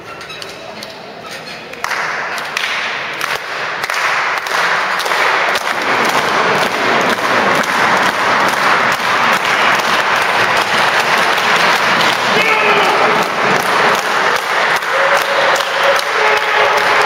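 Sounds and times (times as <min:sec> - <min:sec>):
crowd applauding: 0:01.8 - 0:17.0.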